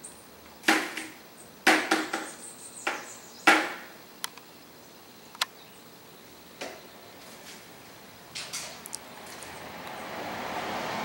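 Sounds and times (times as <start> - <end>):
sharp knocks: 0.6 - 4.0.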